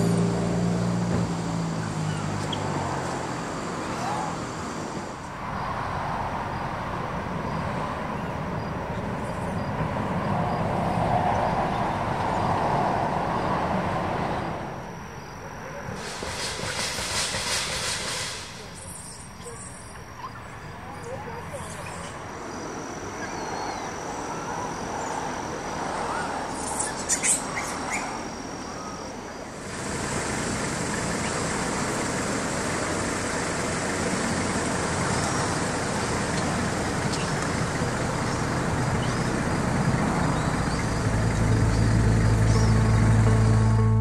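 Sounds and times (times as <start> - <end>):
distant road traffic: 0.0 - 44.0
music with low held notes: 42.2 - 44.0.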